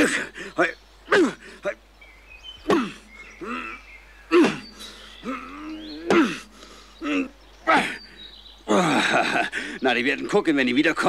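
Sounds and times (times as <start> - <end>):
man making cartoon grunts: 2.7 - 8.0.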